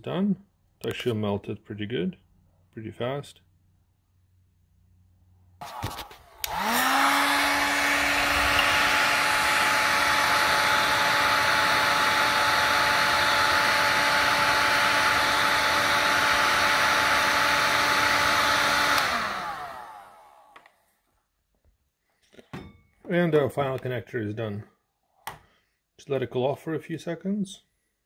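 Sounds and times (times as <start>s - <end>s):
heat gun fan whine: 5.6s - 20.7s.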